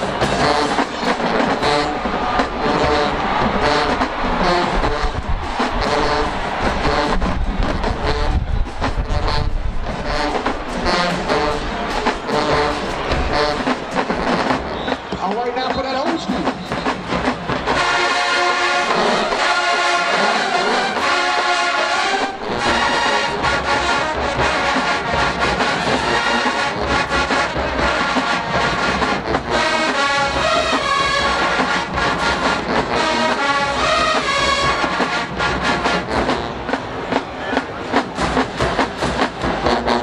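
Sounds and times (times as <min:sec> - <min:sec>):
drums: 0:00.0 - 0:40.0
marching band brass chords: 0:00.0 - 0:40.0.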